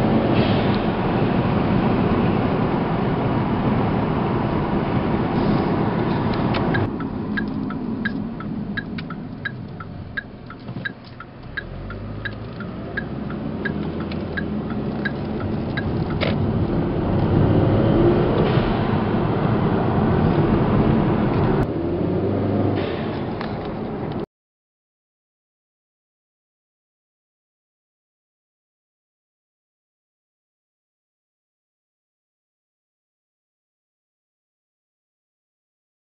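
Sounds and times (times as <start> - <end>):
car engine pulling under power: 0.0 - 24.2
turn signal ticking: 6.3 - 16.6.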